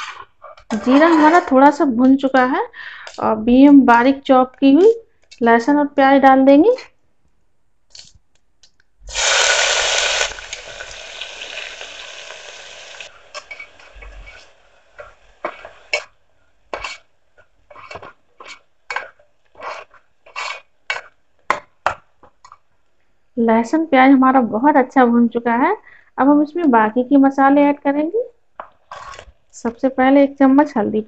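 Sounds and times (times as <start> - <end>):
onion sizzling in hot oil: 9.1 - 16.1
ladle scraping and knocking a pot: 13.3 - 22.6.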